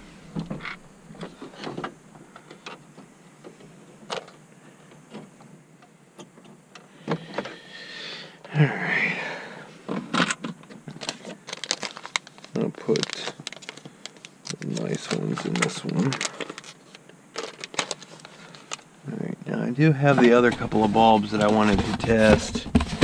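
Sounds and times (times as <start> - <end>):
rustling scrape with thump: 20.1 - 23.0.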